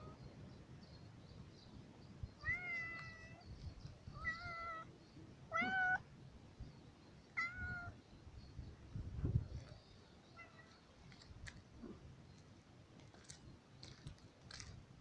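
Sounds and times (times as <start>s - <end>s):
cat meowing: 5.5s - 6.0s.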